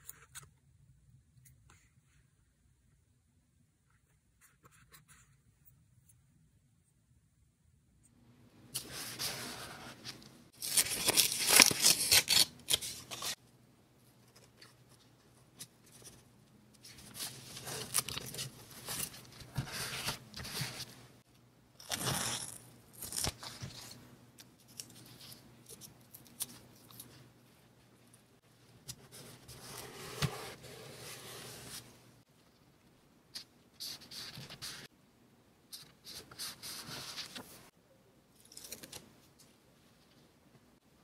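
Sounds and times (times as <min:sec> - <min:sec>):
paper tearing: 0:10.6 - 0:13.4
paper rustling and scraping: 0:29.1 - 0:32.0.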